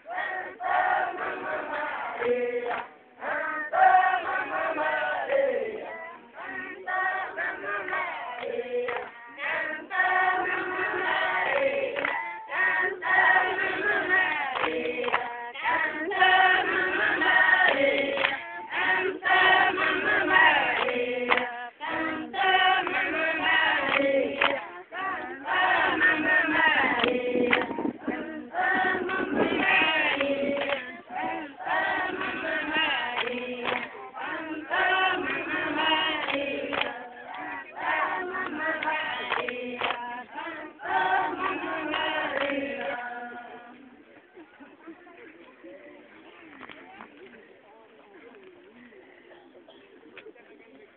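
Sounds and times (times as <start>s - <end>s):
crowd chanting: 0.0s - 44.1s.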